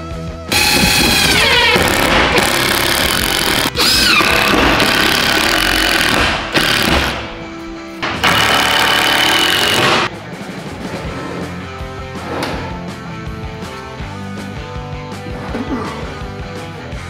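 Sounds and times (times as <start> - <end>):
background music: 0.0 - 17.0
impact driver driving screws: 0.6 - 7.3, 8.2 - 10.1.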